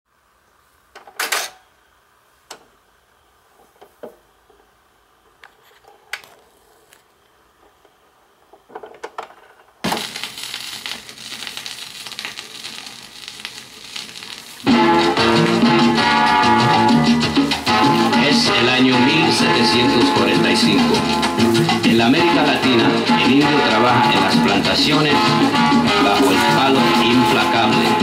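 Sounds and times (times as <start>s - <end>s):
vinyl hiss and crackle: 0.1s - 1.0s, 1.7s - 28.0s
salsa music: 14.6s - 28.0s.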